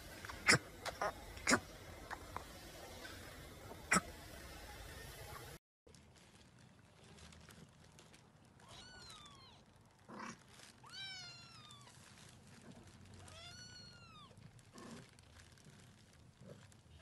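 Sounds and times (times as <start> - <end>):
soft rustles: 5.9 - 17.0.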